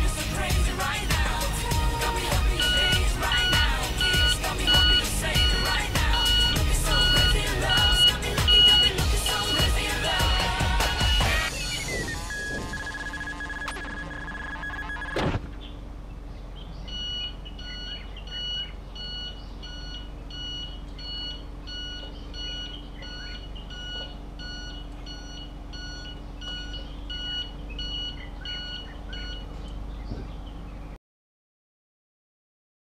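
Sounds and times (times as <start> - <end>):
steady low hum: 0.0 - 31.0
short electronic beeps: 2.5 - 15.3, 16.9 - 29.5
thump: 15.2 - 15.6.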